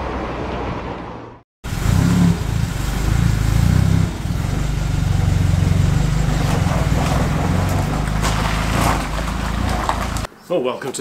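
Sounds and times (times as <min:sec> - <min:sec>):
vehicle engine running: 0:01.6 - 0:10.3.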